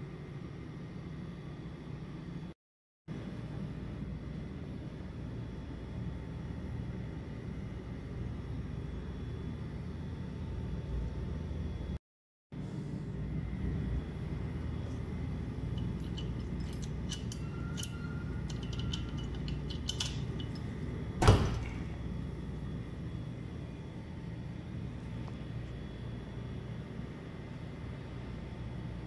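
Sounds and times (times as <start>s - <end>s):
low hum: 12.6s - 29.0s
keys clicking and jingling: 15.8s - 20.7s.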